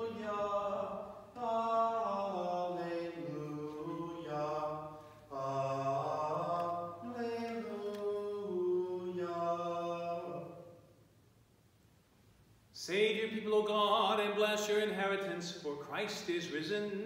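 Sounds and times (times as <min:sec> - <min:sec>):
unaccompanied liturgical chant: 0:00.0 - 0:10.8.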